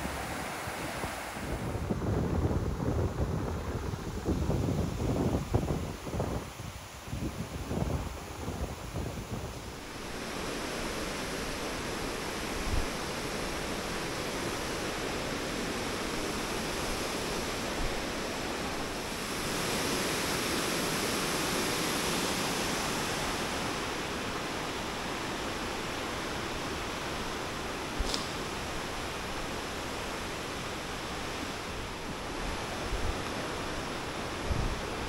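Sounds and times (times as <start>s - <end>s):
waterfall rushing: 0.0s - 2.0s, 9.6s - 35.0s.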